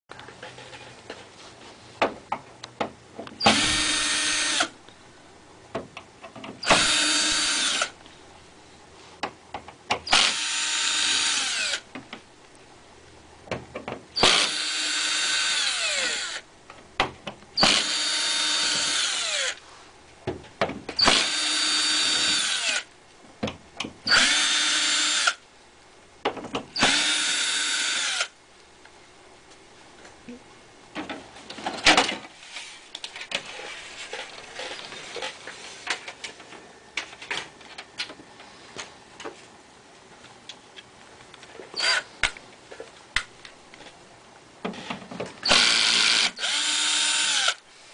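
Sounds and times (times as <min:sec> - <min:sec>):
power screwdriver whirring: 0:03.4 - 0:04.7, 0:06.6 - 0:07.9, 0:24.1 - 0:25.4, 0:45.4 - 0:47.6.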